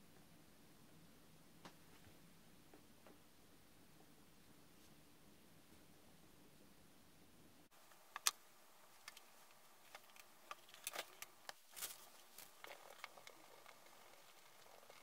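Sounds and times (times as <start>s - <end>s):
rustling: 7.7s - 15.0s.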